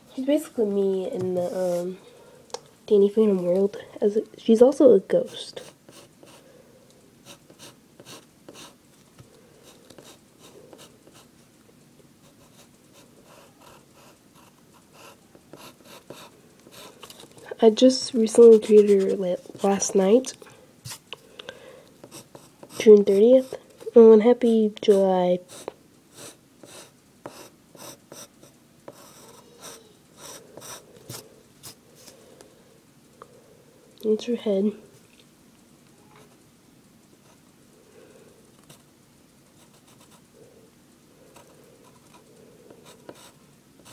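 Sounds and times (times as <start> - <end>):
pencil scratching on paper: 5.3 - 6.4, 7.2 - 8.8, 12.2 - 17.0, 18.3 - 19.8, 24.9 - 31.8, 42.8 - 43.9.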